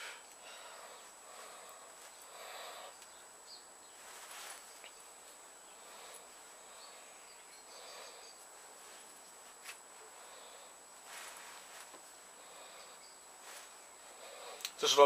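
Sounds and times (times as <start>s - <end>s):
steady hiss: 0.0s - 15.0s
small ticks: 2.9s - 3.2s, 14.5s - 14.8s.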